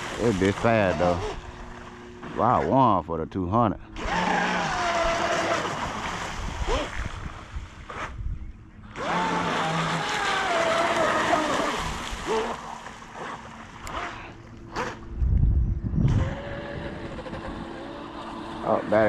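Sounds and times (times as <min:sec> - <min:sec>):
electric motor whine: 0:03.9 - 0:07.1, 0:07.8 - 0:19.0.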